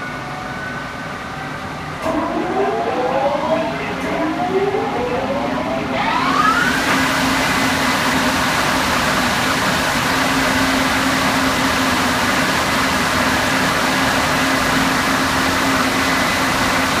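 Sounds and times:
low hum: 0:01.8 - 0:06.7.

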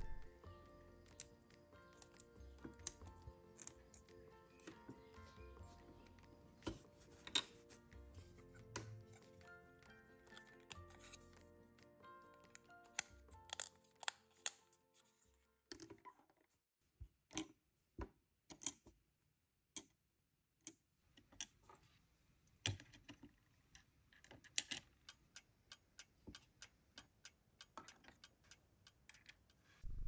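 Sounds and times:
small pieces clicking on table: 0:12.5 - 0:14.6.

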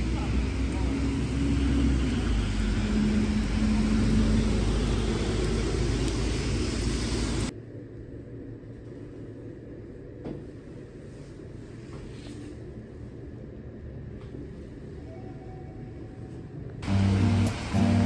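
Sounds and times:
cars passing on wet road: 0:00.0 - 0:07.5, 0:16.8 - 0:18.0
low rumble: 0:00.0 - 0:11.7
low hum: 0:00.0 - 0:18.0.

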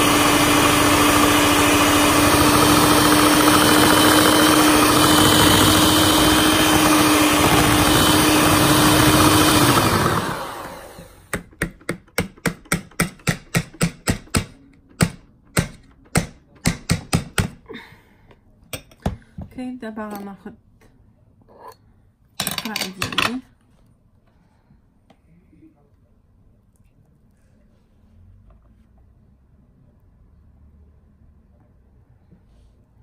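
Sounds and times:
electric hand mixer whine: 0:00.0 - 0:11.2.

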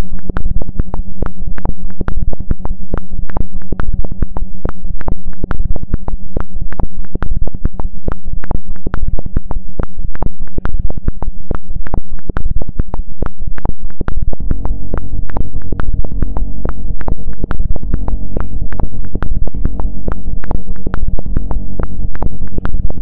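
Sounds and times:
electronic clicks and crackles: 0:00.0 - 0:23.0
low droning hum: 0:00.0 - 0:23.0.

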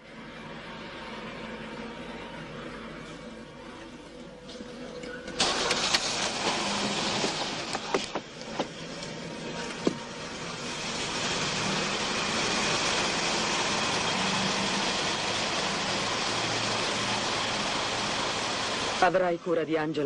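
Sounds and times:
car engine running: 0:05.4 - 0:19.2.

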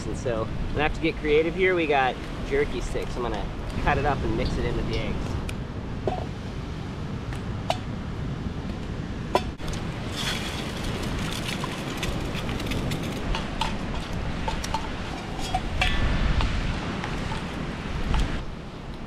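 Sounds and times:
utensil clinking and scraping pan: 0:10.1 - 0:16.0.

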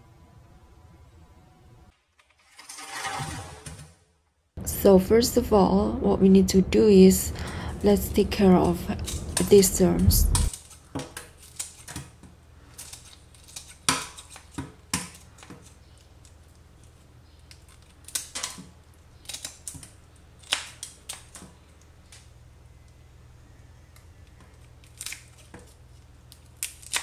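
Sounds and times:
scissors snipping shrimp: 0:08.4 - 0:22.3.

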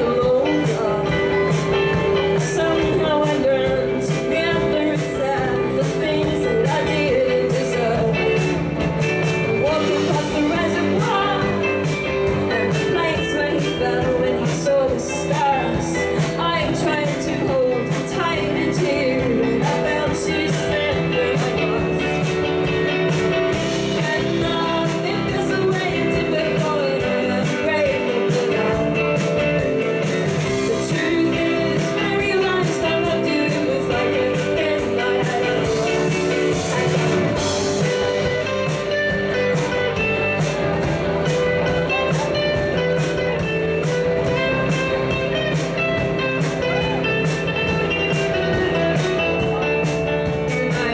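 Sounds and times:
woman singing: 0:00.0 - 0:40.1, 0:41.7 - 0:50.9
pop band playing live: 0:00.0 - 0:50.9
strummed guitar: 0:00.0 - 0:50.9.

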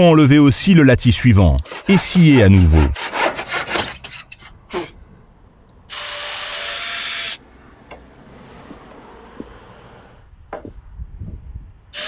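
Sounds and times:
hand saw cutting wood: 0:01.6 - 0:04.9
cordless drill driving screw: 0:05.9 - 0:07.4.

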